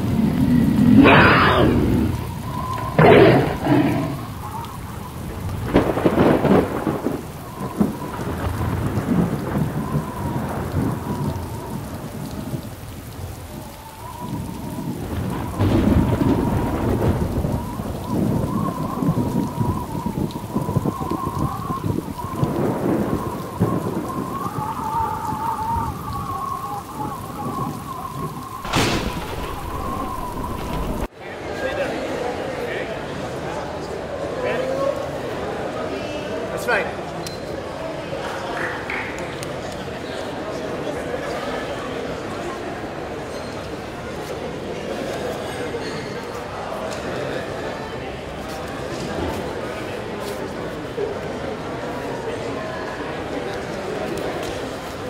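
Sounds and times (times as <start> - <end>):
thunder crack: 0.0 - 31.1
thunder rolling: 0.0 - 31.1
rain falling: 0.0 - 55.0.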